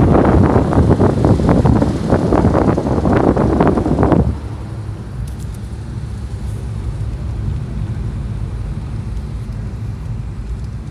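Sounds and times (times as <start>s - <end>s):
wind noise rushing: 0.0s - 7.5s
car engine low rumble: 0.0s - 10.9s.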